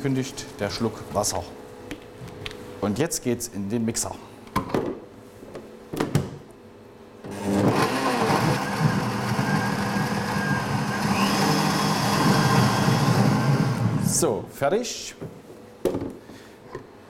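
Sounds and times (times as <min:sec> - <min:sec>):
blender running at high speed: 0:07.3 - 0:14.1.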